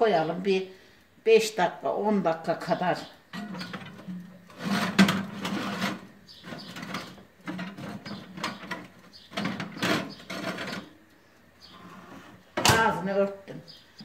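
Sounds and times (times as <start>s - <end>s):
dish scraping on metal wire rack: 3.3s - 11.0s.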